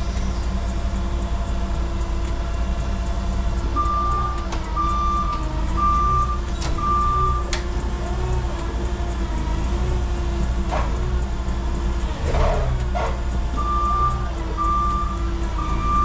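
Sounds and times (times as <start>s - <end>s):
low engine hum: 0.0s - 16.0s
forklift warning beeper: 3.8s - 7.6s, 12.4s - 16.0s.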